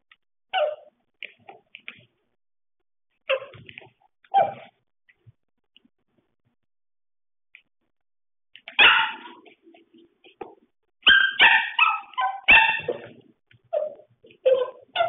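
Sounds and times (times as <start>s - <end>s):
puppy barking: 0.5s - 0.9s, 4.3s - 4.7s, 8.7s - 9.5s, 11.0s - 15.0s.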